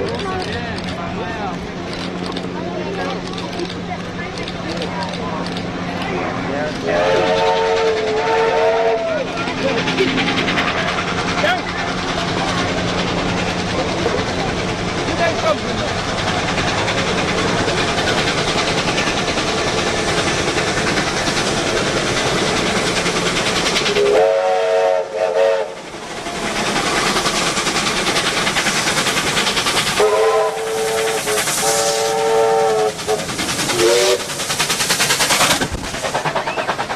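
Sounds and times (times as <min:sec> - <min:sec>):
train wheels rumbling on rails: 0:00.0 - 0:36.9
steam whistle blowing: 0:07.0 - 0:09.2, 0:24.0 - 0:25.8, 0:30.0 - 0:34.3.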